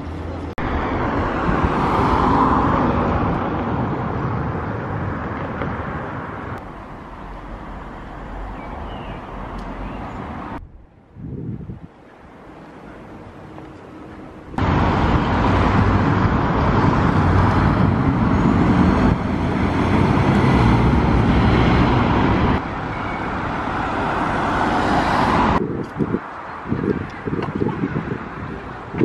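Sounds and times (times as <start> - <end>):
engine noise: 12.0 - 25.6.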